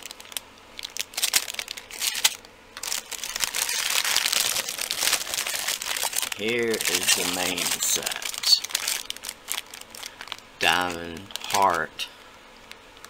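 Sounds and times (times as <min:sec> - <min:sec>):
plastic bags crinkling: 0:00.0 - 0:12.1.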